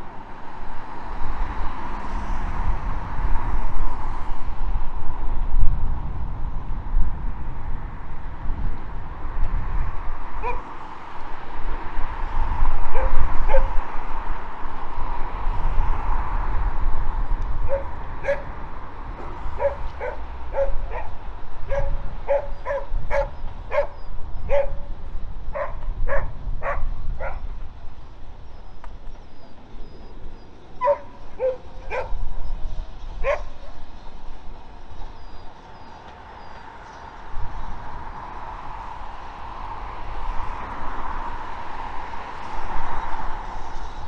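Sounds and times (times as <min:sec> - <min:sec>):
small dog yapping: 0:30.8 - 0:32.2.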